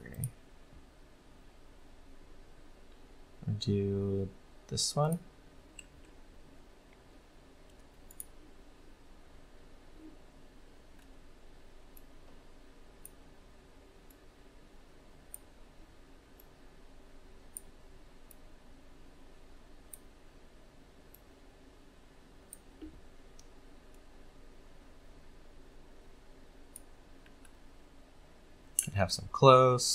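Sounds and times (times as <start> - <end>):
low room hum: 0.0 - 29.9
computer mouse clicks: 7.7 - 8.4, 26.7 - 27.6.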